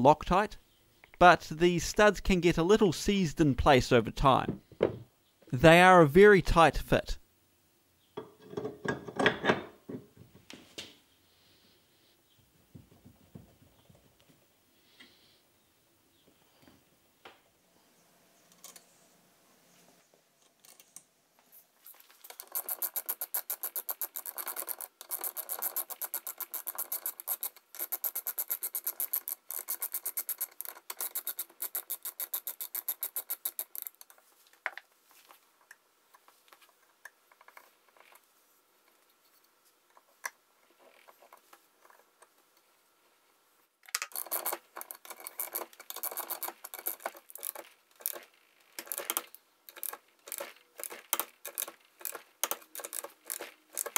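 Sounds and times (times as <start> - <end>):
socket ratchet clicking rapidly: 22.3 - 34.0, 44.1 - 48.2, 48.8 - 53.9.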